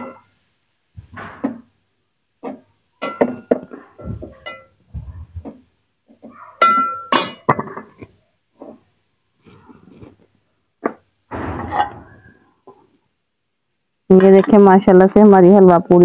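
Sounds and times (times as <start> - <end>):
steel lid knocking: 2.4 - 4.7.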